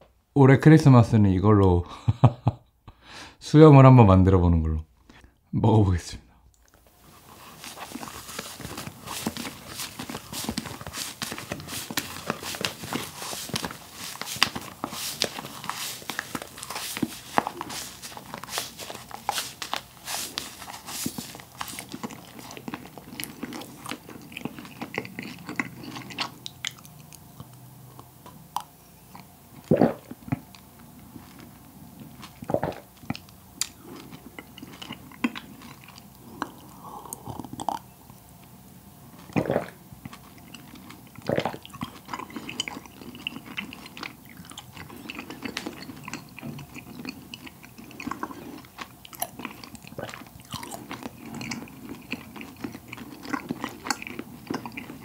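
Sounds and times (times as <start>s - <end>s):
chewing mouth sounds: 6.5s - 38.2s, 39.2s - 55.0s
gulping: 39.3s - 39.8s, 41.2s - 41.9s.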